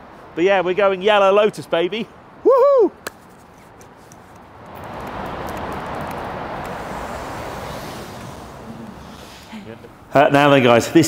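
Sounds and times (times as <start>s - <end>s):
vehicle passing by: 4.4s - 10.1s.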